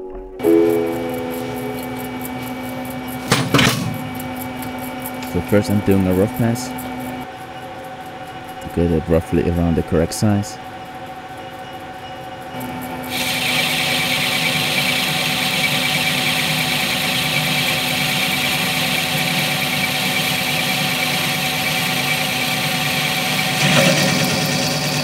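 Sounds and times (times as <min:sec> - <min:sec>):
machine running hum: 0:00.4 - 0:07.3, 0:12.5 - 0:25.0
lathe cutting squealing hiss: 0:13.1 - 0:25.0.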